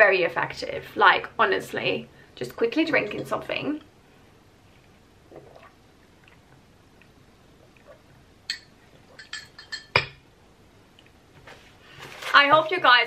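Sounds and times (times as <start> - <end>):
glass clinking with metal straw: 8.5 - 10.2.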